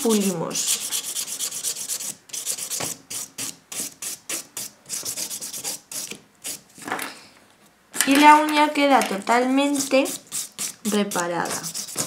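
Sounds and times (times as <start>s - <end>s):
nail buffer rubbing strokes: 0.6s - 6.6s, 9.7s - 12.0s.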